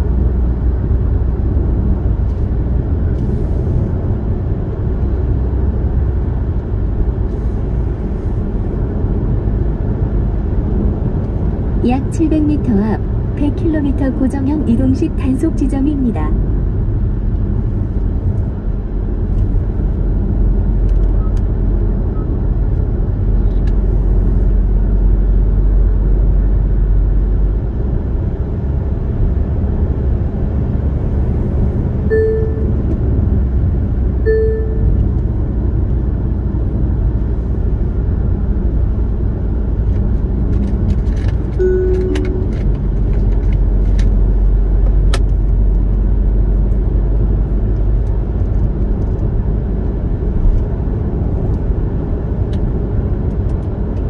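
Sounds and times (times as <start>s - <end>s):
car road and engine noise: 0.0s - 54.0s
short two-note tone: 32.1s - 32.7s, 34.3s - 34.9s, 41.6s - 42.7s
short beeps: 32.1s - 32.9s, 34.2s - 35.0s, 41.6s - 42.7s.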